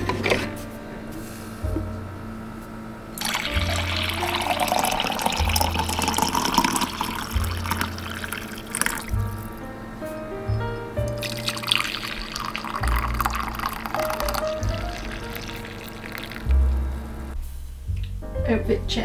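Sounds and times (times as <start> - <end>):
background music with bass: 0.0 - 19.0
coffee pouring into mug: 3.2 - 9.5, 11.2 - 16.5.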